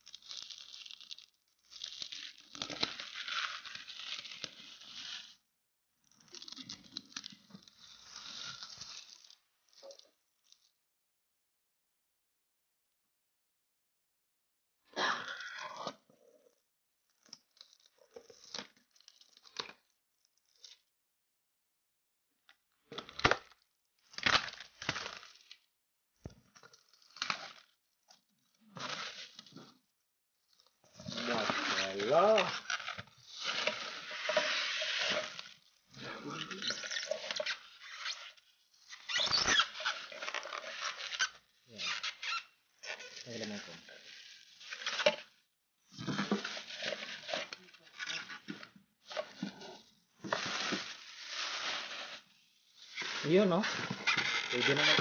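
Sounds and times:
plastic and foam crackling: 0.0s - 5.4s, 6.1s - 10.7s, 22.9s - 55.0s
plastic wrap crinkling and tearing: 0.0s - 5.4s, 6.1s - 10.7s, 17.2s - 19.9s, 23.0s - 25.7s, 26.3s - 29.8s, 30.5s - 55.0s.

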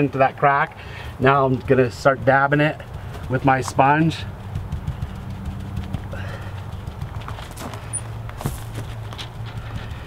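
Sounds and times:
steady low hum: 0.0s - 10.0s
sponge tapping on wall: 2.7s - 7.5s.

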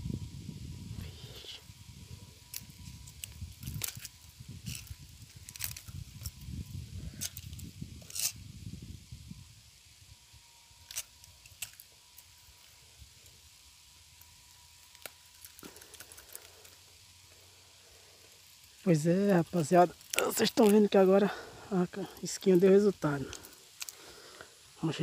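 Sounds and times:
low microphone rumble: 0.0s - 9.7s.

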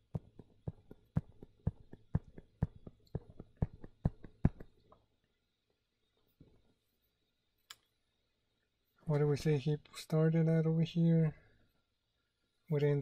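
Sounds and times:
stylus tapping on drawing surface: 0.0s - 4.8s.

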